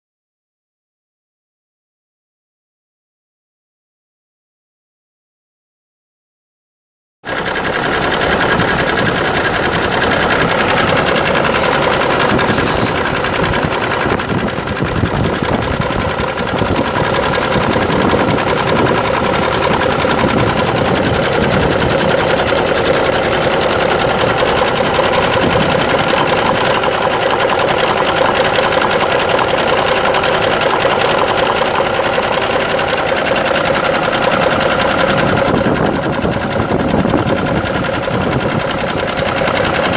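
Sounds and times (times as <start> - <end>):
diesel engine idling with clatter: 7.3 - 39.9
brief hiss: 12.5 - 13.0.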